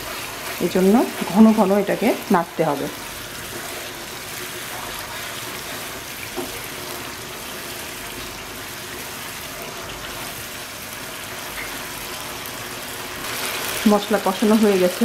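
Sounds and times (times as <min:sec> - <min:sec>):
paste sizzling in frying pan: 0:00.0 - 0:15.0.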